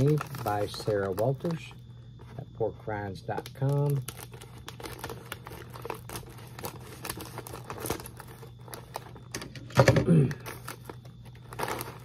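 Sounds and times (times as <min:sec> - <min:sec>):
plastic bag crinkling: 0:00.0 - 0:12.0
scissors cutting plastic bag: 0:03.4 - 0:09.3, 0:10.4 - 0:12.0.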